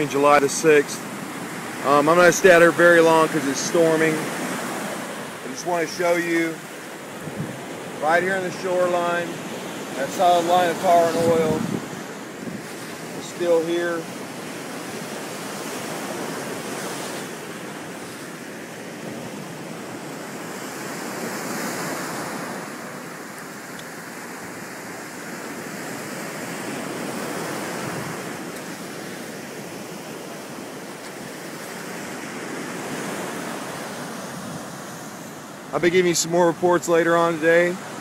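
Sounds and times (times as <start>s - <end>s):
surf breaking on beach: 0.0s - 38.0s
wind on microphone: 7.2s - 7.8s, 10.5s - 13.2s, 26.8s - 28.5s.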